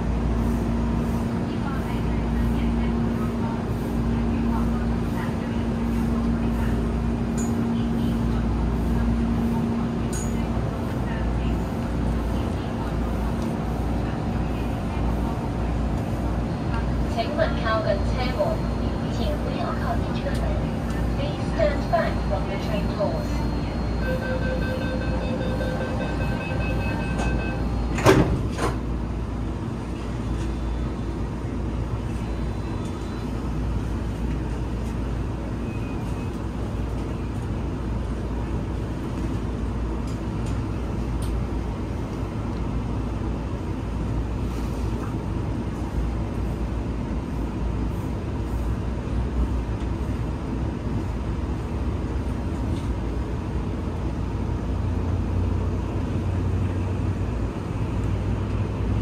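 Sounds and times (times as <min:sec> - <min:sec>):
beeping: 0:20.9 - 0:28.2.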